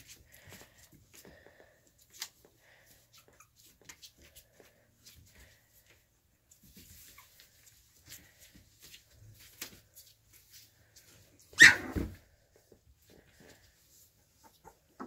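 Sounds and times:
paws scratching on newspaper: 0.0 - 11.5
puppy crying: 11.5 - 12.2.

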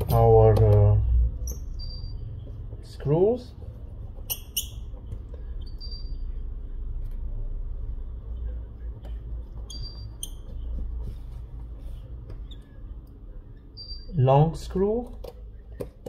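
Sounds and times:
low steady hum: 0.0 - 16.0
short high squeaks: 1.4 - 2.4, 4.2 - 6.4, 9.6 - 10.8, 13.7 - 14.2.

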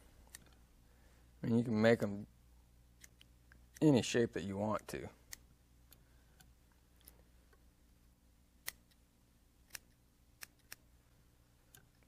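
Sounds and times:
scissors snipping yarn: 8.6 - 9.0, 9.7 - 10.8.

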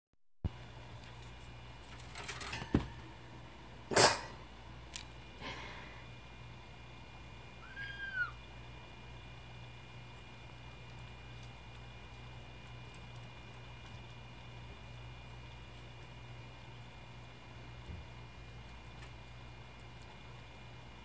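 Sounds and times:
kitten mew: 7.6 - 8.4.

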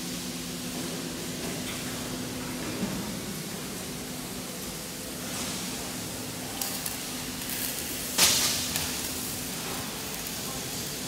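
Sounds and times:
factory hall hum: 0.0 - 11.0.

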